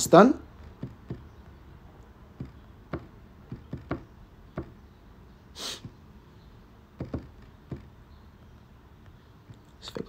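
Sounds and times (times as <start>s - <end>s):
person sniffing: 5.5s - 6.0s.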